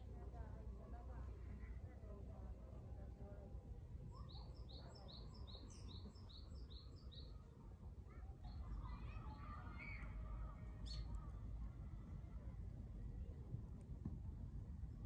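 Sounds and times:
low background rumble: 0:00.0 - 0:15.0
songbird singing: 0:04.0 - 0:07.5, 0:08.4 - 0:11.4.

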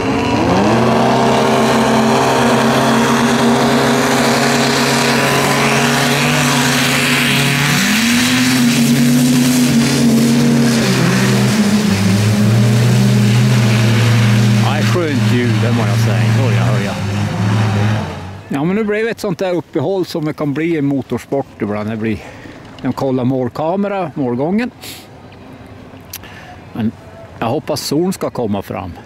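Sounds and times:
snowmobile engines at full throttle: 0:00.0 - 0:18.9.

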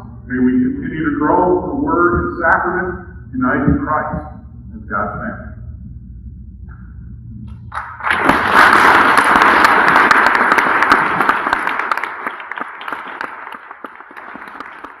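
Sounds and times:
congregation applauding: 0:07.7 - 0:15.0.

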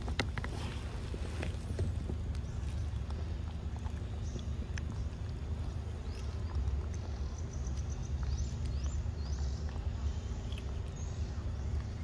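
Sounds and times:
monkey chewing and smacking: 0:00.0 - 0:12.0
bird chirps: 0:02.3 - 0:12.0.

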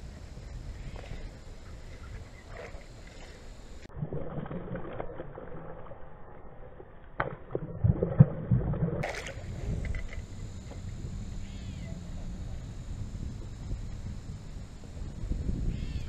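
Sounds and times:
fish splashing in water: 0:02.4 - 0:10.3.

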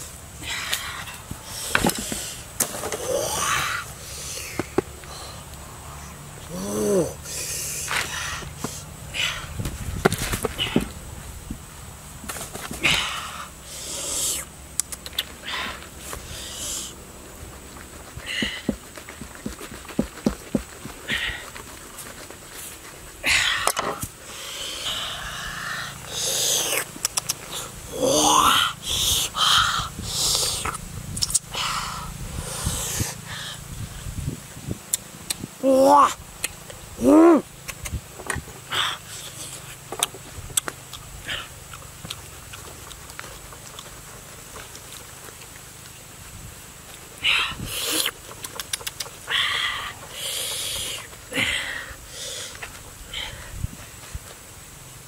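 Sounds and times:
fruit rind tearing: 0:14.7 - 0:23.2, 0:26.4 - 0:27.6.

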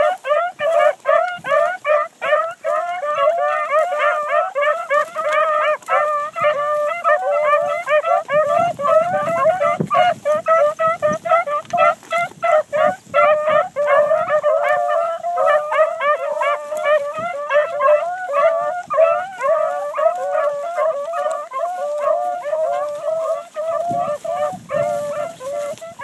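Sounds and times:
hounds baying and howling: 0:00.0 - 0:26.0.

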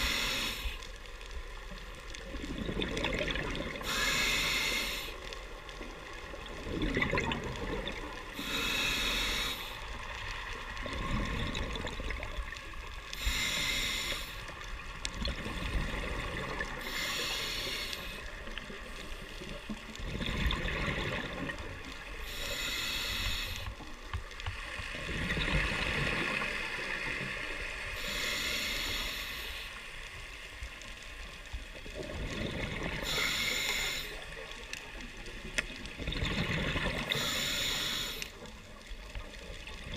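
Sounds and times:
diver breathing through regulator: 0:00.0 - 0:00.9, 0:03.8 - 0:05.3, 0:08.4 - 0:09.9, 0:13.1 - 0:14.5, 0:16.7 - 0:18.3, 0:22.2 - 0:23.8, 0:28.0 - 0:29.8, 0:33.0 - 0:34.3, 0:37.0 - 0:38.4
exhaled bubbles rushing underwater: 0:02.2 - 0:04.0, 0:06.0 - 0:08.4, 0:10.7 - 0:12.9, 0:14.9 - 0:16.9, 0:18.6 - 0:22.2, 0:24.9 - 0:27.8, 0:31.7 - 0:33.1, 0:35.4 - 0:37.2.

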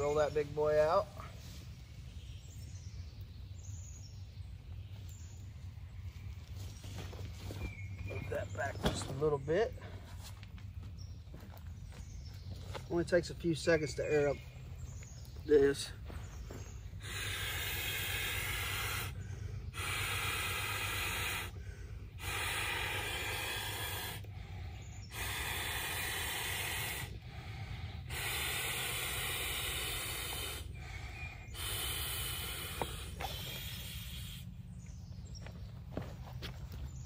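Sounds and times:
person blowing into pillow: 0:19.8 - 0:21.6, 0:22.2 - 0:24.2, 0:28.1 - 0:30.7.

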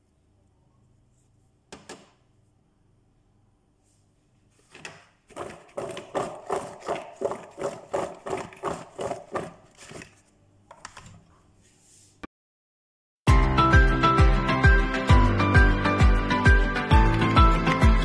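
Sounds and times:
vegetable chunks clattering in plastic bowl: 0:05.3 - 0:10.2.

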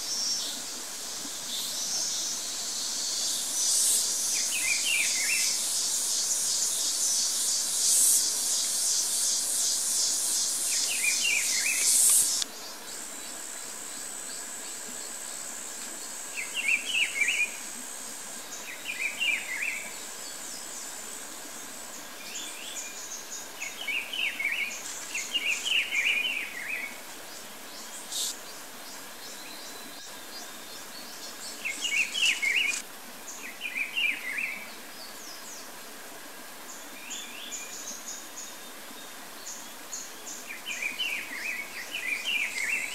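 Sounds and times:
high-pitched insect whine: 0:00.0 - 0:27.0, 0:28.0 - 0:28.4, 0:30.7 - 0:32.8
pulsing insect buzz: 0:02.7 - 0:12.4.

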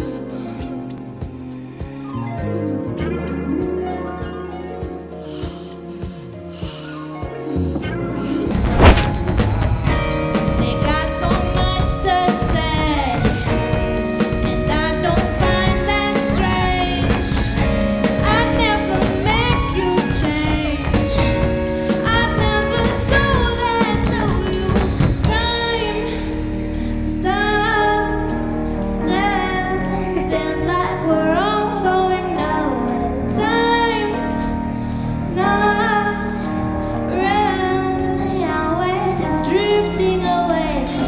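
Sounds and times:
woman singing pop song: 0:10.4 - 0:41.0.

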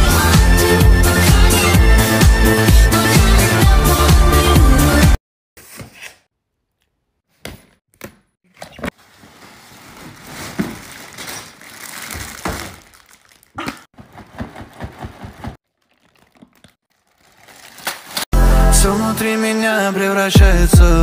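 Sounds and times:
plastic bags crinkling: 0:08.9 - 0:13.8, 0:14.6 - 0:18.3.

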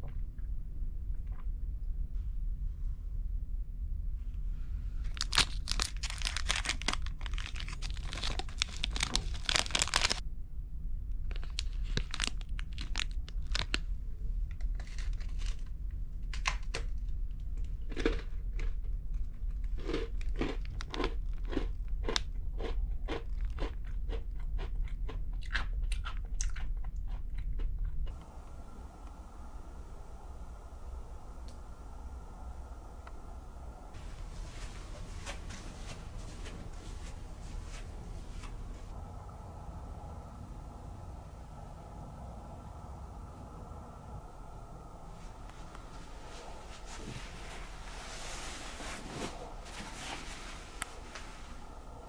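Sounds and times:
biscuit crunching: 0:05.1 - 0:10.2
plastic wrapper crinkling: 0:05.1 - 0:10.2, 0:11.3 - 0:13.8.

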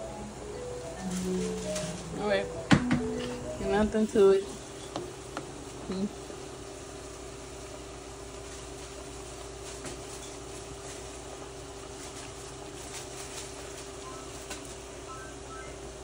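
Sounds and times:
water boiling in a pot: 0:03.8 - 0:12.8.

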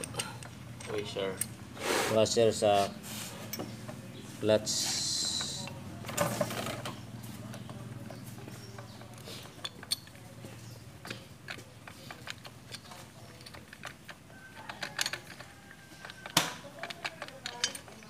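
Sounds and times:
light metallic clicks and clinks: 0:00.0 - 0:01.6, 0:07.5 - 0:18.0.

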